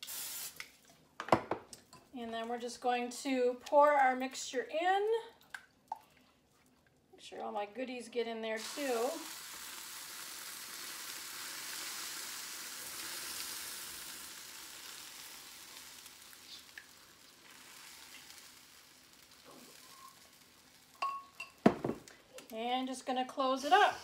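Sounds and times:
batter sizzling in waffle iron: 8.6 - 21.6.

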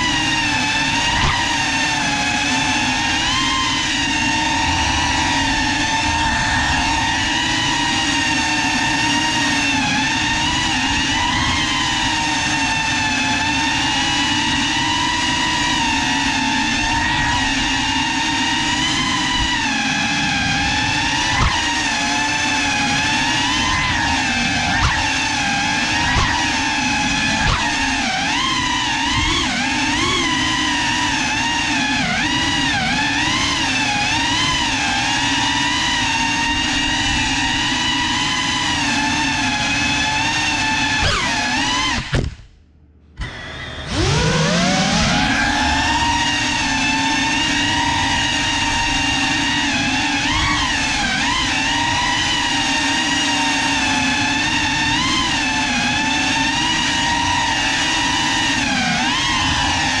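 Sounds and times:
quadcopter motors whining: 0.0 - 42.4, 43.2 - 60.0.

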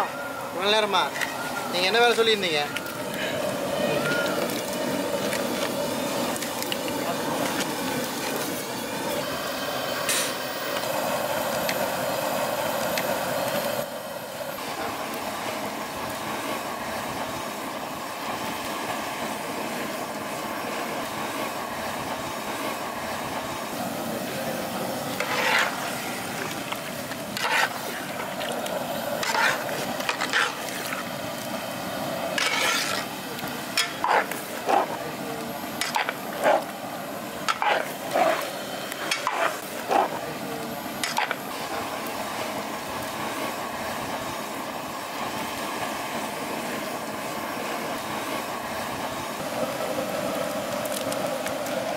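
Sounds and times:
boiling pot hissing: 0.0 - 51.9
metal ladle scraping pot: 25.1 - 26.0, 27.3 - 28.6, 29.2 - 31.0, 32.4 - 33.1, 33.8 - 34.9, 37.4 - 39.6.

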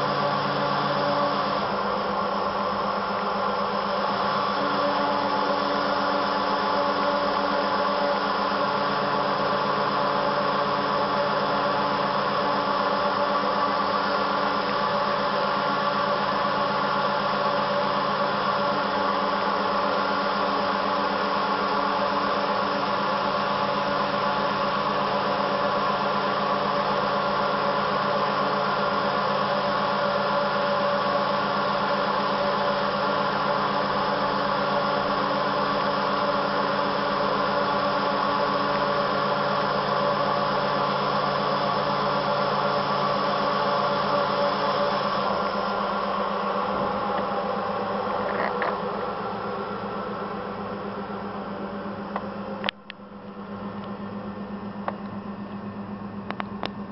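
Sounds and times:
router cutting wood: 0.0 - 49.3.

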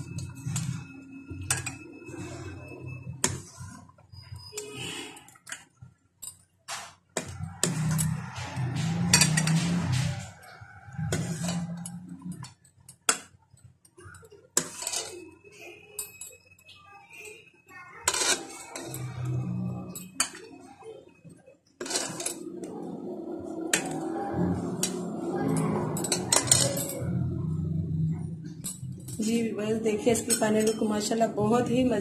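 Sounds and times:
metal ladle scraping steel pot: 7.2 - 12.6, 14.6 - 15.3, 18.0 - 20.4, 21.8 - 22.8, 23.4 - 27.6.

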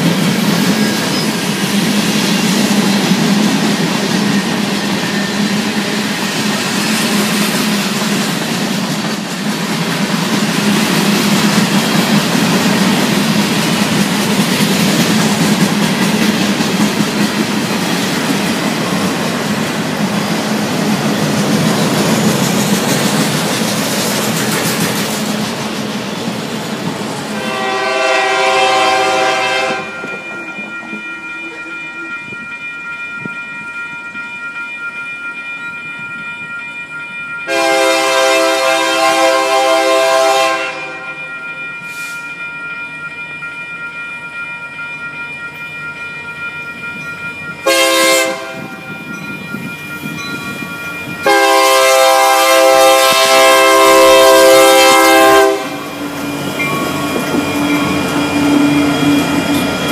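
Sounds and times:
train rumbling: 0.0 - 59.9
locomotive air horn blasts: 27.3 - 30.2, 37.5 - 41.2, 47.6 - 48.8, 51.2 - 55.9.

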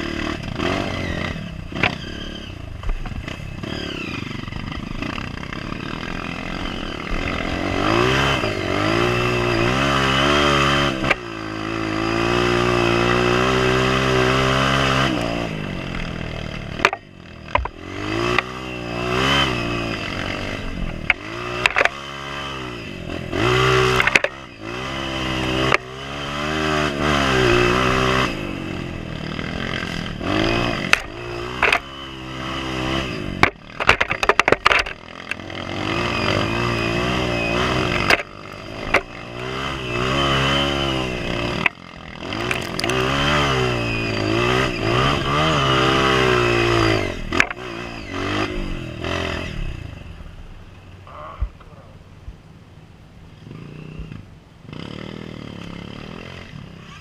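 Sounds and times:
trail bike engine revving: 0.0 - 57.0.

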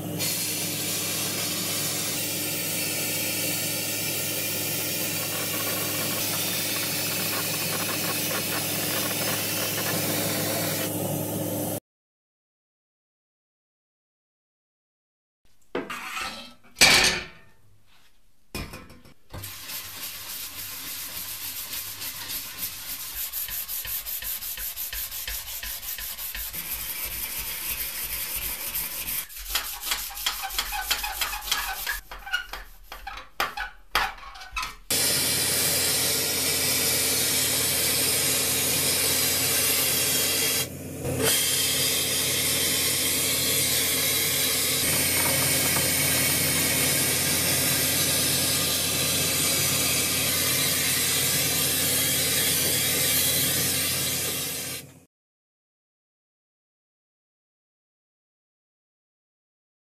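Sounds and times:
spray gun hissing: 0.2 - 11.0
sandpaper rubbing strokes: 0.4 - 11.0, 19.4 - 33.1.

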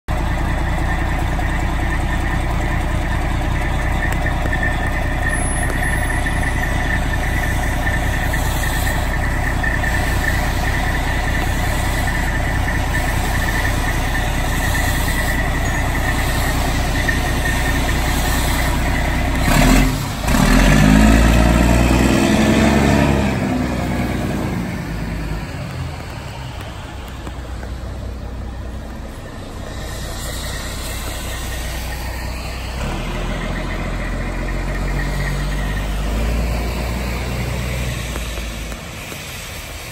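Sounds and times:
engine revving: 0.1 - 39.9
fire engine idling whine: 0.1 - 39.9
burst of noise: 3.6 - 39.9.

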